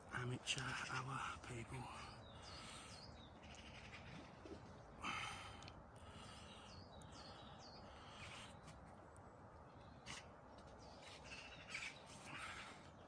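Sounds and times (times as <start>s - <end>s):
steady low hiss: 0.0s - 13.0s
bird chirps: 0.2s - 4.8s.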